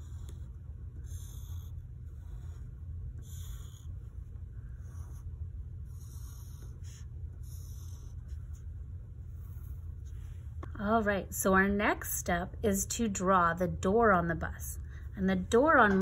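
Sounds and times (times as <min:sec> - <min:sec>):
pencil scratching on paper: 0:00.0 - 0:10.4
steady low hum: 0:00.0 - 0:16.0.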